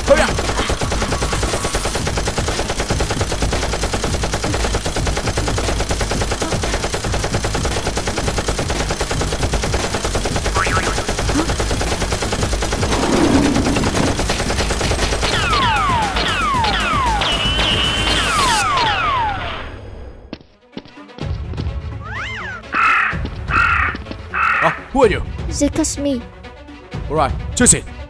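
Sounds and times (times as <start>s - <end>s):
rapid automatic gunfire: 0.0s - 19.0s.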